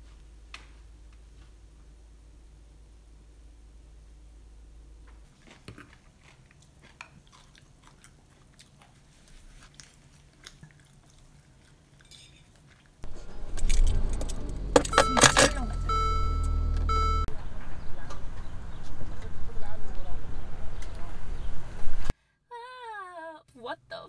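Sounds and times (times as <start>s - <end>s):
cutlery and dishes clinking: 12.0s - 12.6s
car cabin low rumble: 13.0s - 22.1s
dashboard warning chime: 14.5s - 17.3s.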